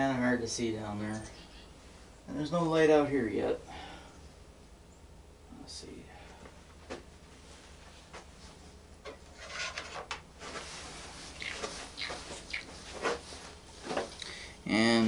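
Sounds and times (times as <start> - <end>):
wrench rubbing and scraping metal: 9.3 - 10.1.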